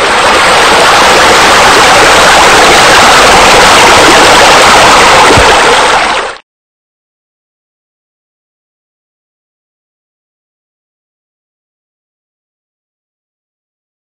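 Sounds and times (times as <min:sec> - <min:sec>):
falling water rushing: 0:00.0 - 0:06.4.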